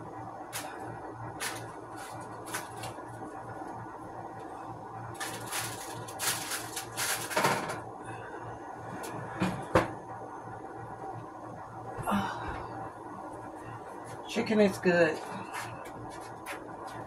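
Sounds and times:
steady low hum: 0.0s - 17.0s
rustling and scraping: 1.4s - 3.2s, 5.1s - 7.8s.

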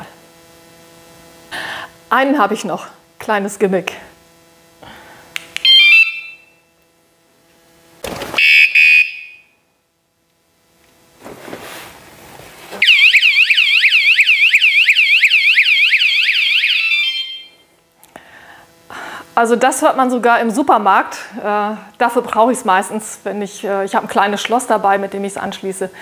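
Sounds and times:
short alarm beeps: 5.6s - 6.6s, 8.4s - 9.6s, 12.8s - 17.6s
warbling alarm siren: 5.6s - 6.6s, 8.4s - 9.6s, 12.8s - 17.7s.

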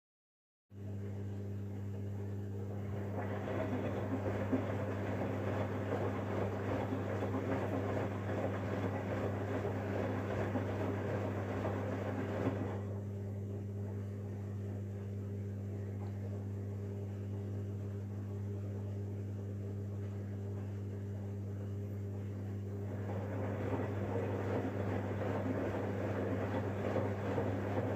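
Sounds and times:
washing machine drum tumbling: 2.7s - 13.1s, 22.8s - 27.9s
water sloshing: 2.8s - 12.8s.

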